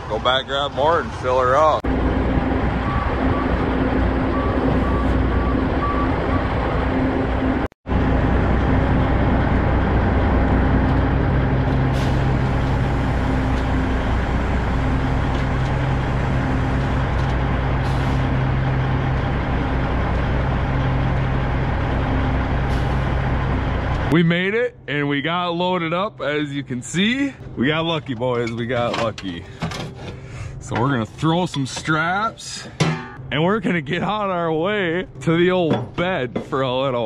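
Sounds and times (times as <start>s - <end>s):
diesel truck engine running: 0.0s - 24.9s
reversing beeper: 2.1s - 7.4s.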